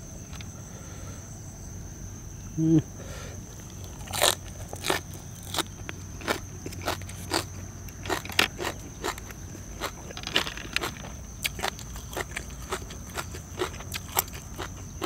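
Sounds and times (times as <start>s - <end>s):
high insect trill: 0.0s - 15.0s
person chewing crunchy food: 3.4s - 15.0s.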